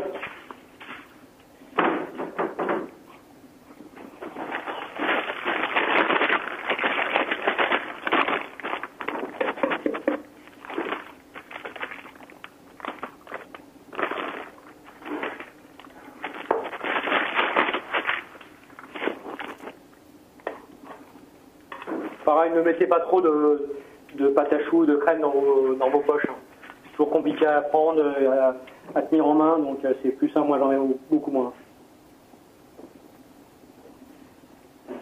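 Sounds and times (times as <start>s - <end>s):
plastic bag crinkling: 4.1s - 19.8s.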